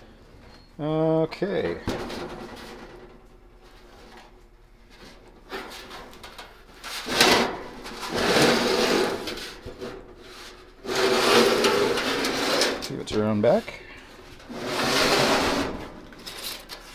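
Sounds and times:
metal cabinet scraping on wood: 5.4 - 16.9.

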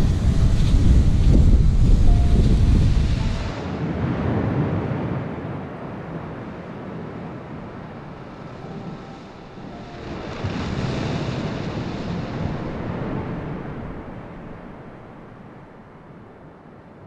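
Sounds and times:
waves breaking on beach: 0.0 - 17.0
wind on microphone: 0.0 - 17.0.

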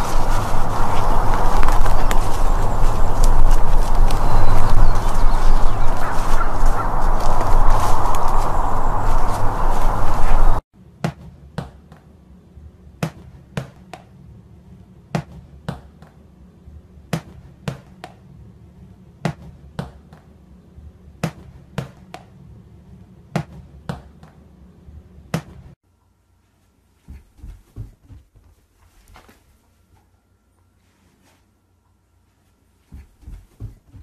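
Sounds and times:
ball bouncing on tiled floor: 15.2 - 16.2, 19.2 - 20.2, 23.4 - 24.4, 32.9 - 34.0
soft thumps on carpeted stairs: 27.0 - 29.3, 32.9 - 34.0.

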